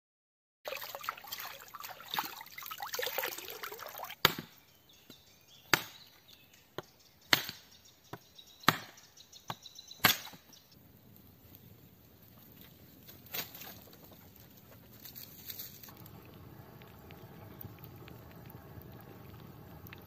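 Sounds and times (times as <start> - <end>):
axe chopping wood: 4.2 - 4.5, 5.7 - 6.0, 7.3 - 7.6, 8.7 - 9.0, 10.0 - 10.4.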